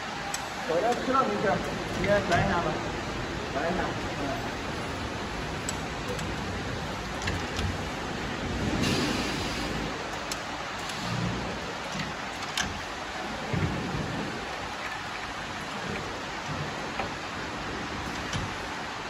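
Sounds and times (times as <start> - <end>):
machinery hissing: 8.4 - 10.1.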